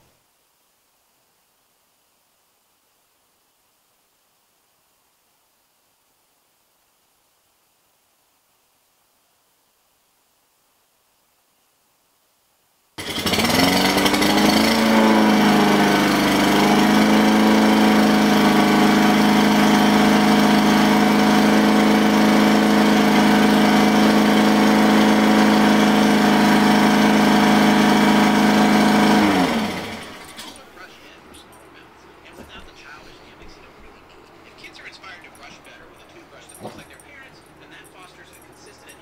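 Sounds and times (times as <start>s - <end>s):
small engine running: 13.0s - 31.6s.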